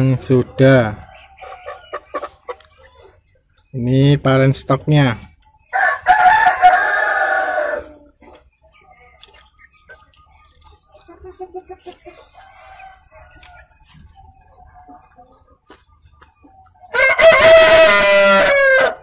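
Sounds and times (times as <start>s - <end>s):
hens clucking softly: 0.3s - 3.7s, 7.6s - 17.0s
rooster crowing: 5.7s - 8.0s, 16.9s - 19.0s.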